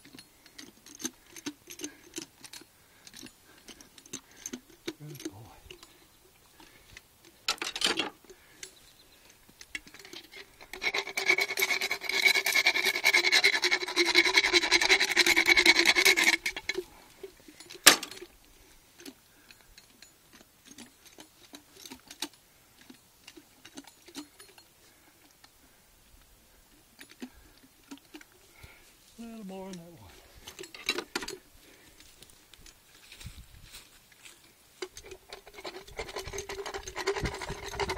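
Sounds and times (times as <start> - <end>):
dental file rasping on teeth: 10.8 - 16.4.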